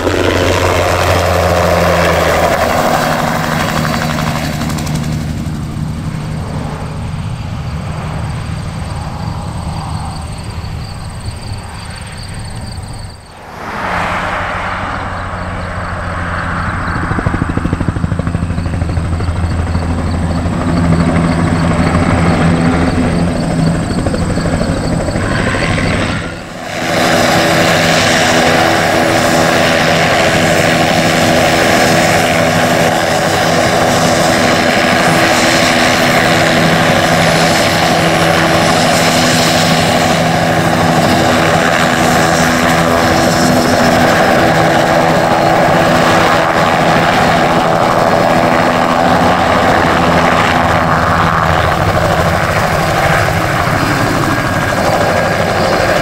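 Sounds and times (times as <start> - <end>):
helicopter rotor and engine: 0.0 - 56.0
steady hum: 12.6 - 19.1.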